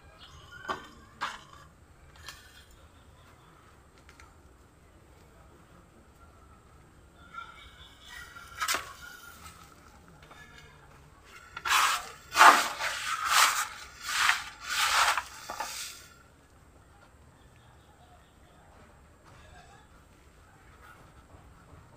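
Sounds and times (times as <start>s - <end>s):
rustling scrapes of soil: 11.6s - 16.2s.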